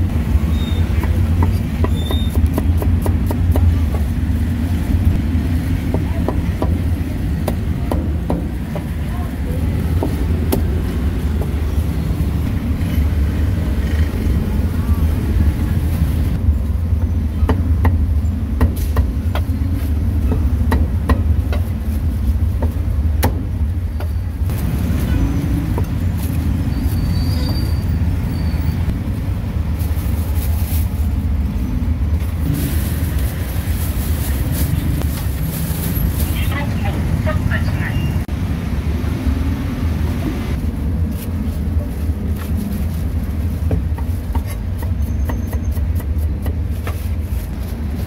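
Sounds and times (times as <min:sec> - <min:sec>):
low rumble of street traffic: 0:00.0 - 0:48.0
plastic bag rustling: 0:29.6 - 0:31.4, 0:32.3 - 0:36.4.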